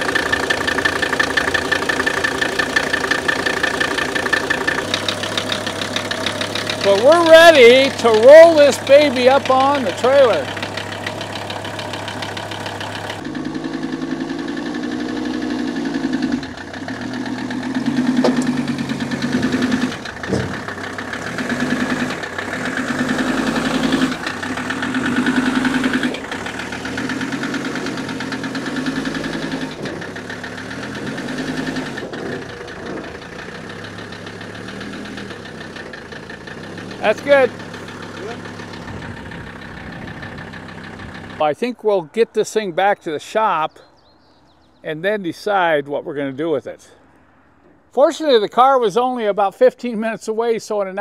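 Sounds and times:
diesel engine revving: 0.0 - 42.6
diesel knock: 16.4 - 41.4.

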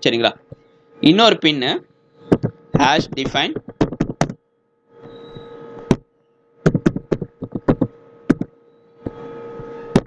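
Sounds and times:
keyboard keys clicking: 2.4 - 4.4, 6.7 - 8.5.

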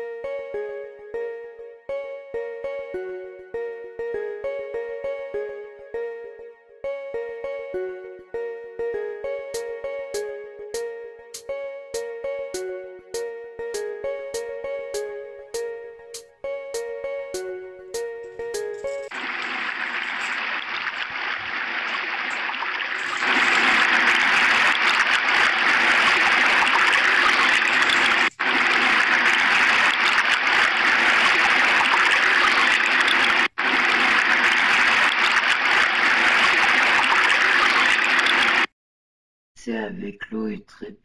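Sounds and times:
water running from faucet: 19.0 - 38.7.

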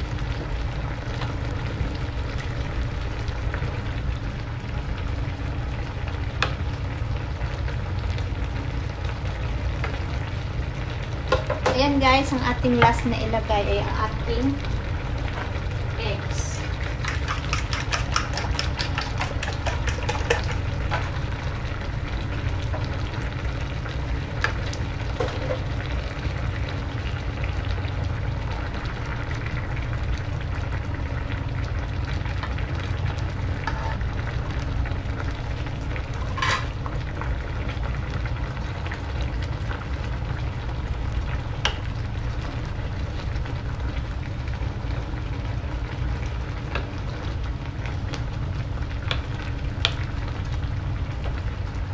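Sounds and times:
crackles: 0.0 - 51.9
soup boiling and bubbling: 0.0 - 51.9.

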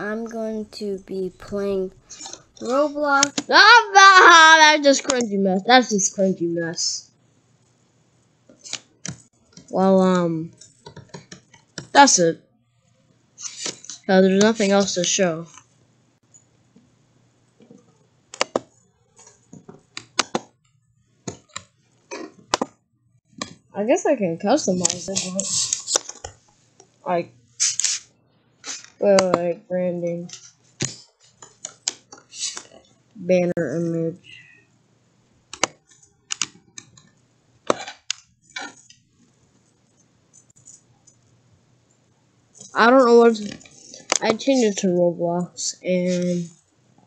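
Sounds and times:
computer mouse clicking: 18.3 - 20.5, 35.5 - 37.2.

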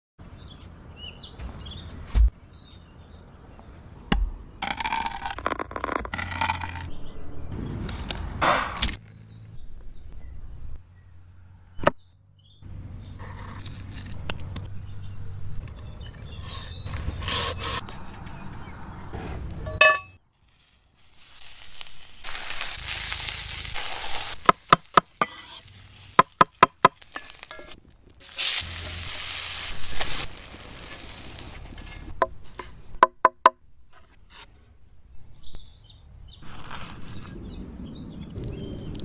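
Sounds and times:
birds chirping: 0.2 - 4.7, 9.0 - 20.2, 35.1 - 39.0
scraping and rustling: 19.2 - 32.9.

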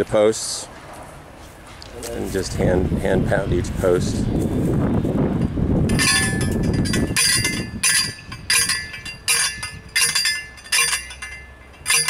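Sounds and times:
post driver clanking on steel post: 5.9 - 12.0.

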